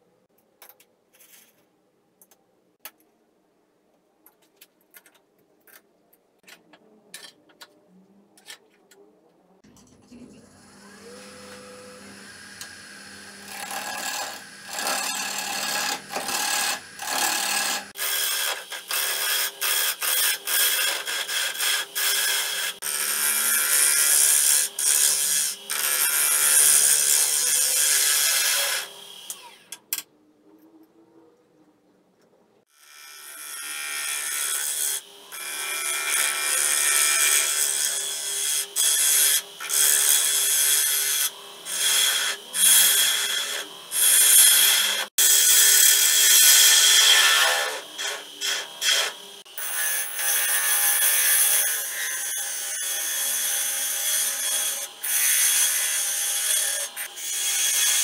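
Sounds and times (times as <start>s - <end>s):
lathe motor humming: 10.5s - 17.1s.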